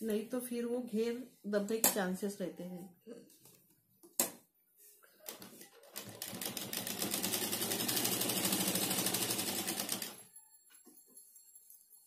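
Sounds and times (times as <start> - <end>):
sewing machine stitching: 5.8 - 10.2.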